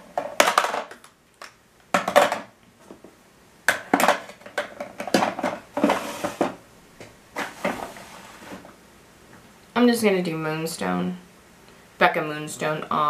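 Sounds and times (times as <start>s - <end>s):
makeup containers clacking: 3.7s - 6.6s.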